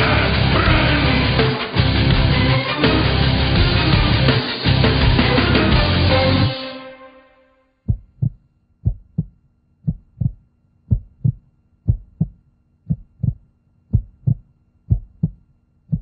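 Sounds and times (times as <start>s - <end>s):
heartbeat thumps: 7.9s - 16.0s.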